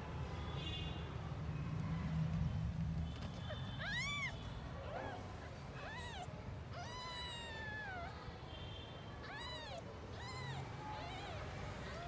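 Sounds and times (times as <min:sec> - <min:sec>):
kittens mewing: 0:03.4 - 0:08.2, 0:09.2 - 0:12.0.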